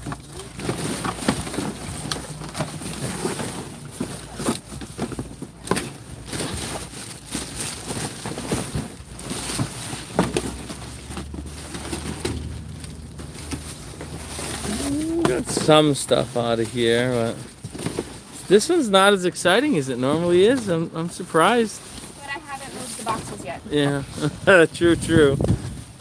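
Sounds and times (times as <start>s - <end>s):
cardboard and plastic bags rustling: 0.0s - 26.0s.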